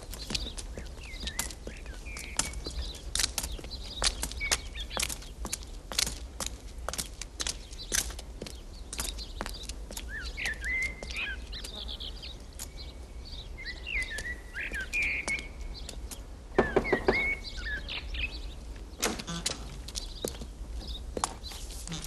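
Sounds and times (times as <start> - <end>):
footsteps crunching on gravel: 0.0 - 22.0
small birds chirping: 0.0 - 22.0
loud knocks: 16.6 - 17.4.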